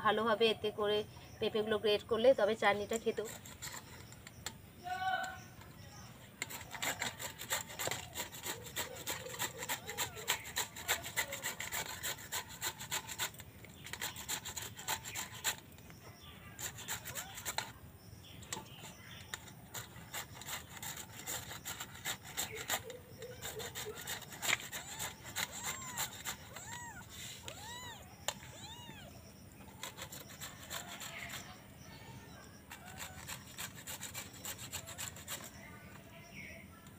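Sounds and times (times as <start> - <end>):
papaya grated on metal grater: 2.8 - 5.0, 5.7 - 17.8, 18.4 - 28.9, 29.7 - 36.4
kitten mewing: 23.3 - 29.2.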